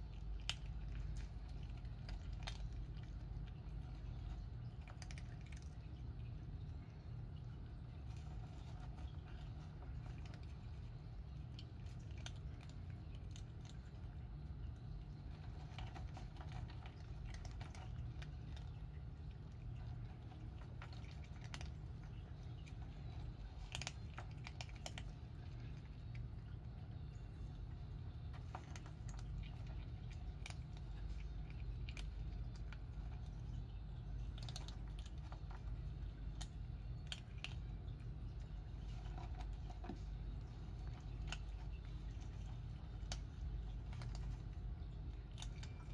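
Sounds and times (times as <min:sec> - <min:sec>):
cats crunching dry kibble: 0:00.0 - 0:45.9
steady low rumble: 0:00.0 - 0:45.9.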